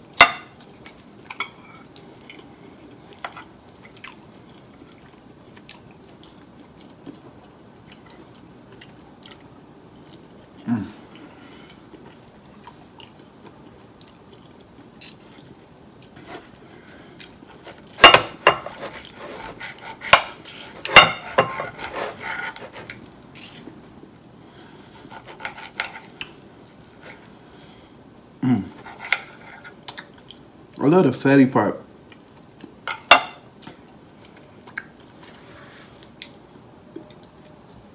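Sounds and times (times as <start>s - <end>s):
knife and fork scraping a plate: 17.5s - 23.7s, 24.9s - 26.2s, 28.8s - 29.8s.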